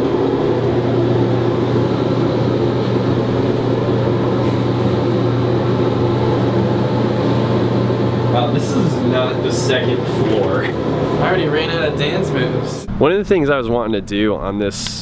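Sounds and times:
elevator mechanical hum: 0.0s - 15.0s.

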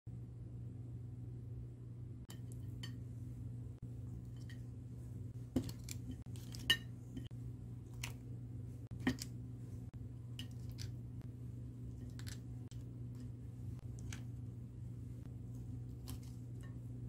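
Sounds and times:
steady low hum: 0.1s - 17.0s
utensils clinking on ceramic plate: 5.6s - 7.3s.

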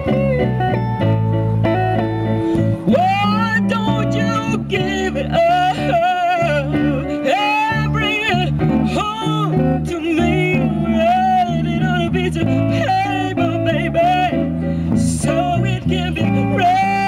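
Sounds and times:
guitar: 0.0s - 17.0s
woman singing with vibrato: 2.8s - 17.0s.

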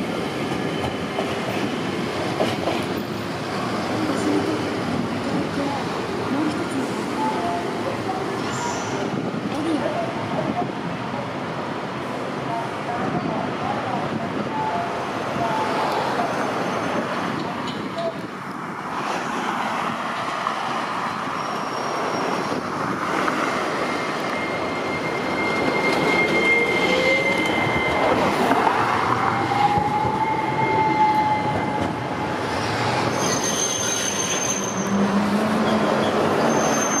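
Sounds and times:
streetcar running on rails: 0.0s - 37.0s
high wheel squeal: 16.1s - 17.1s, 21.2s - 22.6s, 23.2s - 37.0s.

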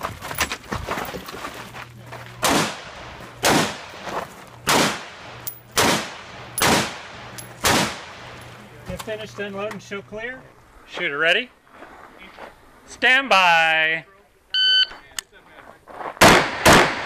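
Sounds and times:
rifle shots with echo: 2.4s - 8.4s, 16.2s - 17.0s.

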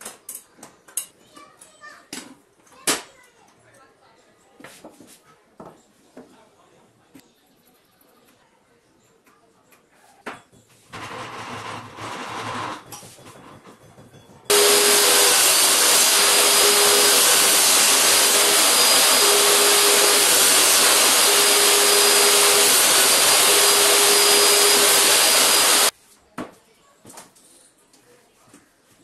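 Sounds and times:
table saw cutting wood: 10.9s - 12.8s, 14.5s - 25.9s.

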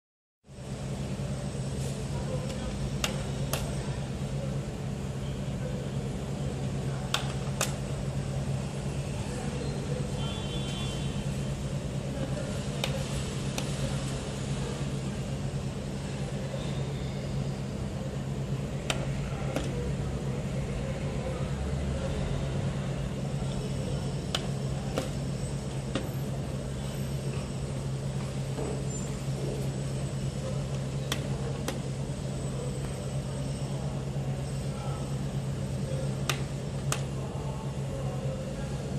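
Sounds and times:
steady low hum: 0.5s - 38.9s.

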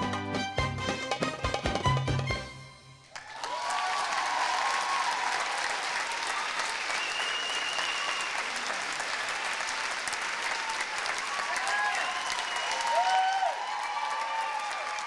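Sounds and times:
audience applauding: 3.0s - 15.0s
people cheering: 3.1s - 15.0s.

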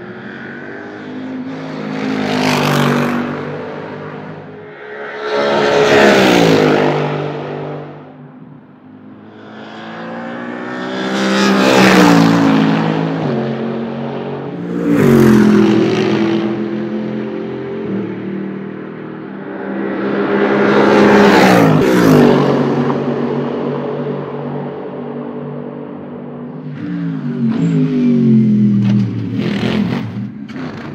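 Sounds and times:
race car engine passing by: 0.0s - 8.0s.

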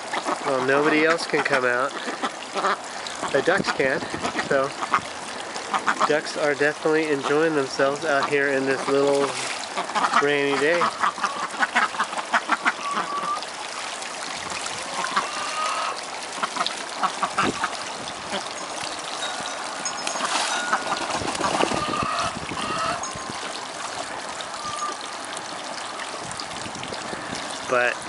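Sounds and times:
ducks splashing in water: 0.0s - 28.0s
trickling water: 0.0s - 28.0s
soft duck calls: 0.1s - 5.1s.

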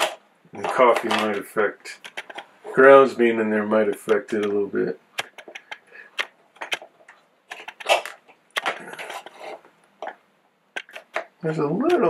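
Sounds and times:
plastic parts rattling: 0.0s - 2.5s, 5.2s - 10.2s.

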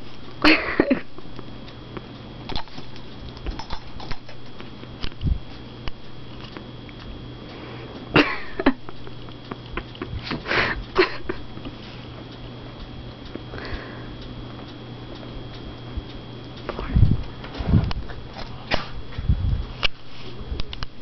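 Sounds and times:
fan hum: 0.0s - 21.0s
dog sniffing and snorting: 18.4s - 19.0s.

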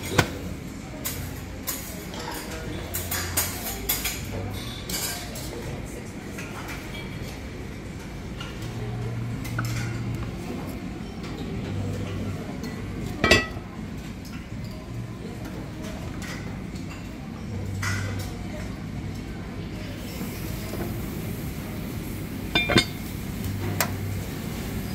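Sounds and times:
dishes and cutlery clinking: 0.0s - 19.3s, 22.4s - 24.0s
pot lid clink: 13.2s - 13.6s, 22.6s - 23.0s.

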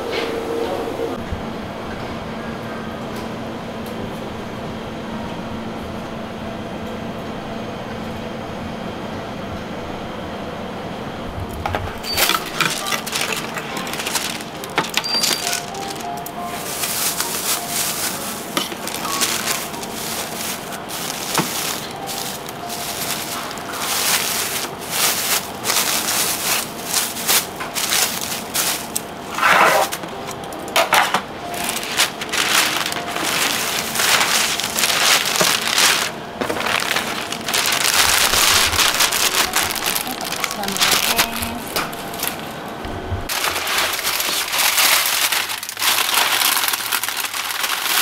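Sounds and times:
plastic bag and paper crinkling: 11.7s - 42.6s, 43.2s - 48.0s.

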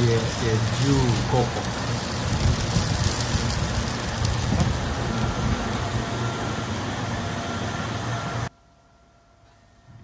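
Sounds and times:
oil sizzling on a griddle: 0.0s - 7.9s.

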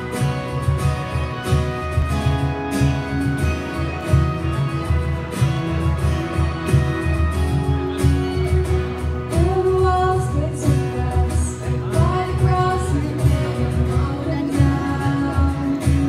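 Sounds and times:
acoustic guitar: 0.0s - 16.0s
bass guitar: 0.0s - 16.0s
cajon beat: 0.0s - 16.0s
women singing: 9.4s - 16.0s.

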